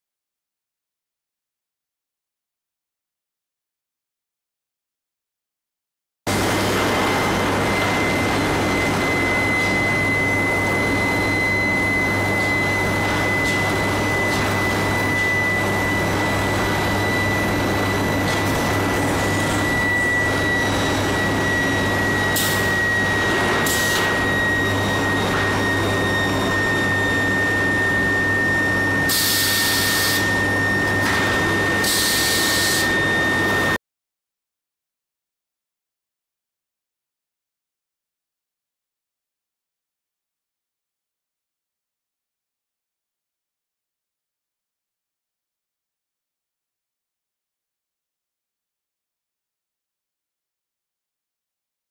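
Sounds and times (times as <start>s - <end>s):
machinery high-pitched whine: 6.3s - 33.8s.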